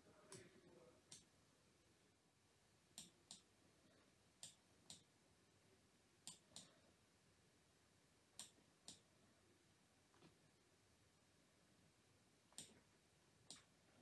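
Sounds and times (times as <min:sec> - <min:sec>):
computer mouse clicks: 0:01.1 - 0:01.3, 0:03.0 - 0:03.5, 0:04.4 - 0:05.1, 0:06.2 - 0:06.8, 0:08.4 - 0:09.1, 0:12.5 - 0:12.8.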